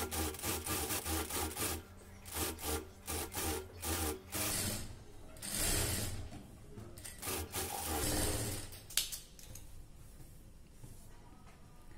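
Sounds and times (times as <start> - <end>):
sewing machine stitching: 0.0 - 6.2, 7.1 - 8.7.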